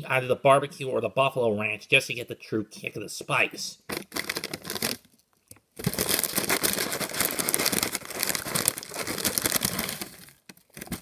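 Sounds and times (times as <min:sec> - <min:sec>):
paper bag crinkling: 0:03.9 - 0:05.1, 0:05.8 - 0:11.0.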